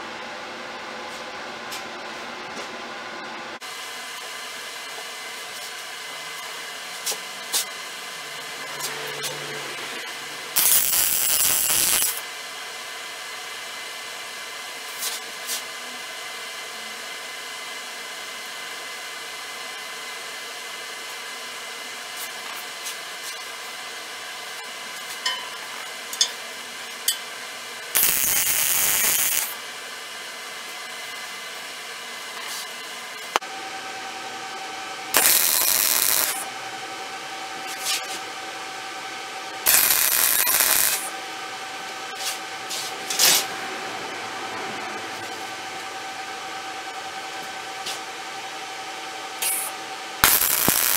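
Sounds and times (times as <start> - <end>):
stick welding arc crackle: 10.5 - 12.2, 27.9 - 29.6, 35.2 - 36.4, 39.6 - 41.1, 49.4 - 50.9
welding arc crackle: 10.5 - 12.2, 27.9 - 29.6, 35.2 - 36.4, 39.6 - 41.1, 49.4 - 50.9.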